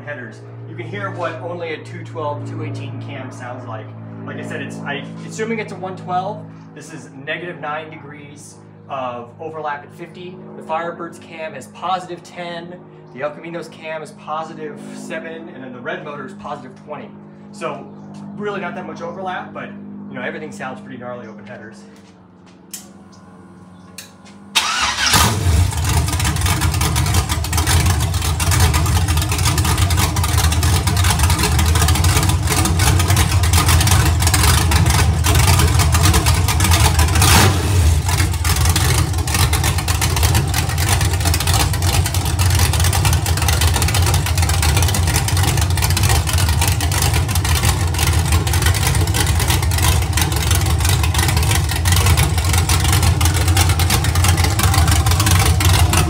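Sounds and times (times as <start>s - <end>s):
engine starting and running loud: 0.0s - 7.0s, 22.0s - 56.0s.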